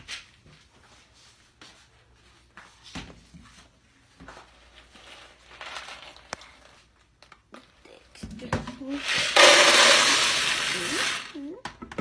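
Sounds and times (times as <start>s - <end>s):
plastic bowl of dry beans knocking: 8.2s - 12.0s.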